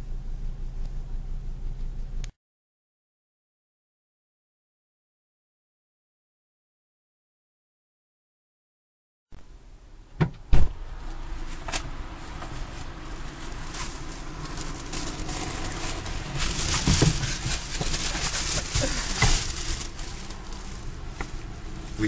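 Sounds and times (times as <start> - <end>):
sharp thump in car: 10.2 - 10.8, 16.6 - 17.9
rustling and crinkling: 10.8 - 22.0.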